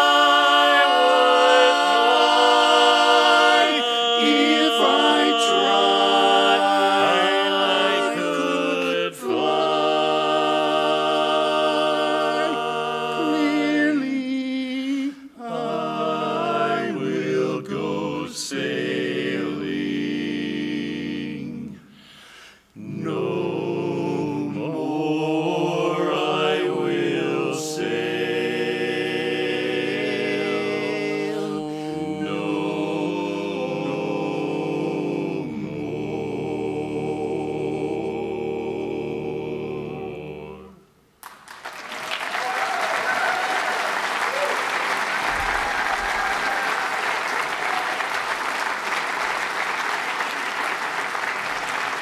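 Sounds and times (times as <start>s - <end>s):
male quartet singing a cappella: 0.0s - 40.9s.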